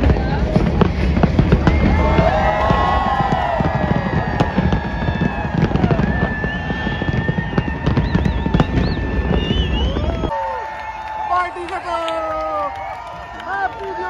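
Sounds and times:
fireworks crackling: 0.0 - 10.3.

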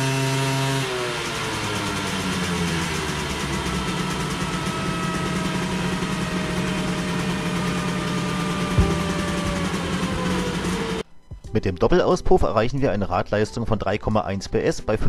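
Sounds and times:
two-stroke engine humming: 0.0 - 11.0.

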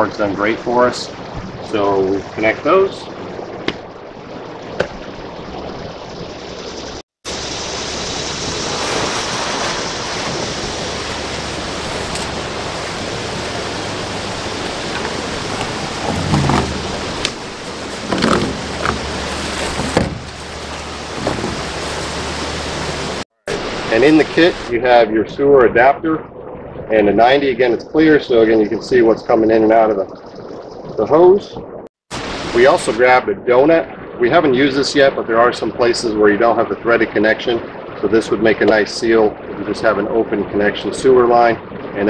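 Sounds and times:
creek water rushing: 7.3 - 25.0
hose rustling and knocking: 8.8 - 23.2.

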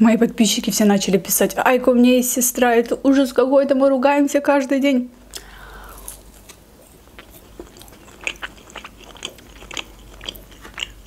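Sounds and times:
chewing: 5.4 - 11.0
biting into crunchy fried chicken: 6.0 - 11.0.

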